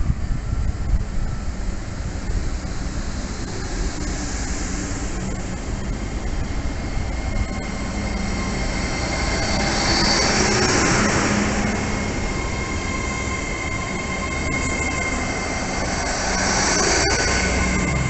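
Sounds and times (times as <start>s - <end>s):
train wheels rumbling: 0.0s - 18.0s
high wheel squeal: 5.8s - 18.0s.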